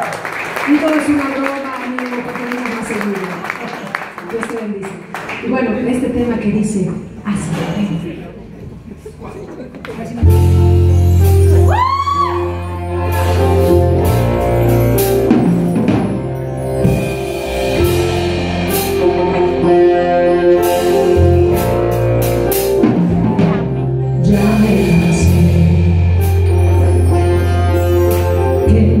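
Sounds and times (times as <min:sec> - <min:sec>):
live band playing: 0:10.2 - 0:29.0
drum strokes: 0:13.3 - 0:28.2
person singing: 0:23.2 - 0:29.0.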